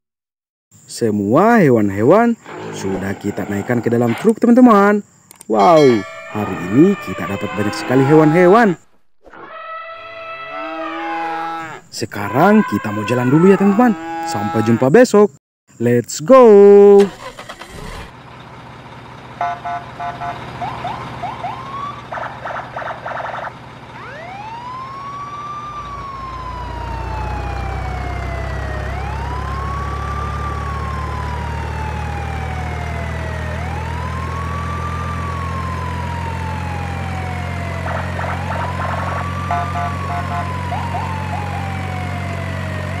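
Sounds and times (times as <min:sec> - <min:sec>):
siren wailing: 0:05.5 - 0:15.0, 0:19.4 - 0:43.0.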